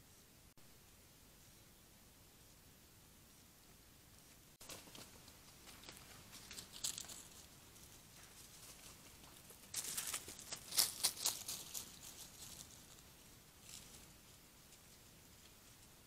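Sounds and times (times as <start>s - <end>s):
faint steady hiss: 0.0s - 16.0s
dry leaves crackling underfoot: 4.6s - 15.8s.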